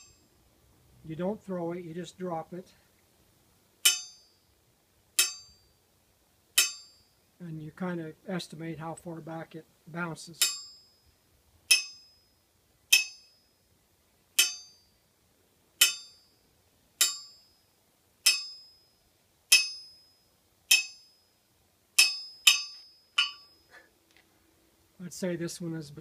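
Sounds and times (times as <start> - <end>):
steel ball pinging on anvil: 3.8 - 4.5, 5.2 - 5.8, 6.6 - 7.2, 10.4 - 11.0, 11.7 - 13.6, 14.4 - 15.0, 15.8 - 16.4, 17.0 - 21.4, 22.0 - 23.7.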